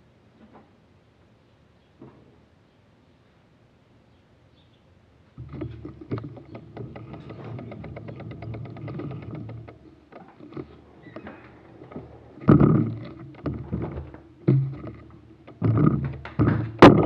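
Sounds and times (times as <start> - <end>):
fast run of clicks: 5.4 - 17.0.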